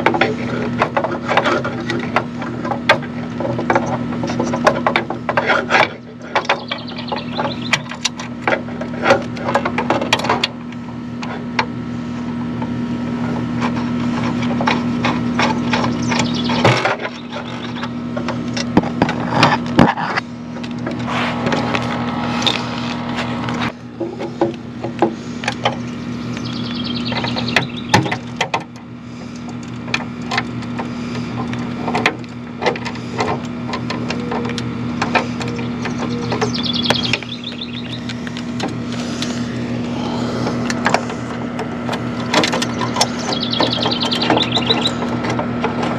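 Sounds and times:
steady low hum: 0:00.0 - 0:45.9
hand tools clicking and rattling: 0:13.6 - 0:45.9.

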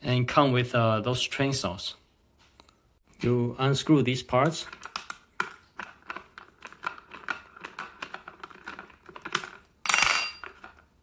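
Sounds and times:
metallic clatter with ringing: 0:09.9 - 0:10.5.

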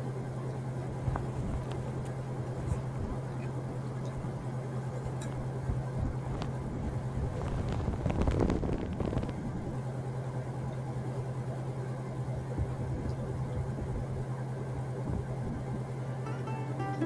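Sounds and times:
gas torch burning: 0:00.7 - 0:10.7.

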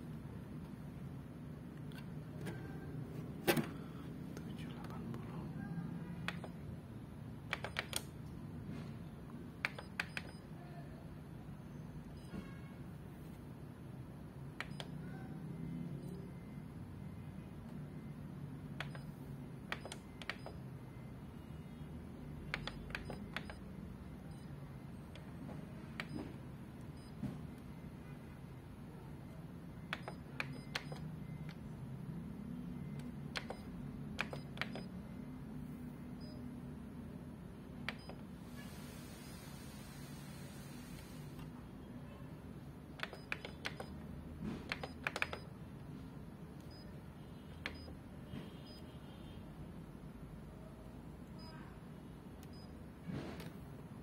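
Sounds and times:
keypad key clicks: 0:06.2 - 0:06.6, 0:07.4 - 0:08.3, 0:09.6 - 0:10.4, 0:14.6 - 0:15.0, 0:18.8 - 0:20.6, 0:22.4 - 0:23.6, 0:29.8 - 0:31.6, 0:32.9 - 0:35.0, 0:37.8 - 0:38.3, 0:42.9 - 0:45.5, 0:47.5 - 0:48.0.

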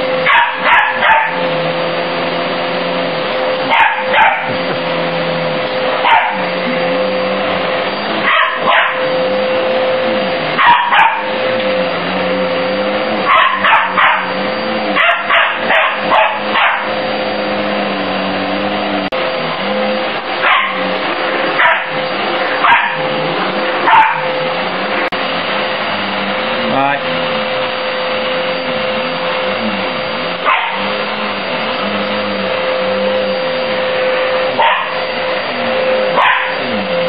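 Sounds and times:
vacuum cleaner motor hum: 0:00.0 - 0:37.0
puppy barking: 0:00.2 - 0:01.5, 0:03.7 - 0:04.7, 0:06.0 - 0:06.6, 0:08.2 - 0:09.2, 0:10.6 - 0:11.4, 0:13.2 - 0:14.4, 0:15.0 - 0:17.0, 0:20.4 - 0:20.9, 0:21.6 - 0:22.0, 0:22.6 - 0:23.0, 0:23.8 - 0:24.4, 0:30.4 - 0:30.9, 0:34.6 - 0:35.0, 0:36.1 - 0:36.7.

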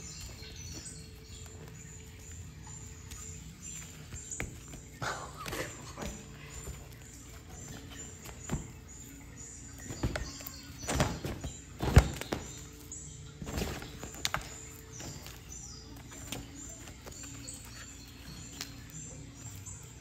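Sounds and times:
soft background music: 0:00.0 - 0:20.0
nylon tunnel rustling and thumping: 0:09.8 - 0:17.6.

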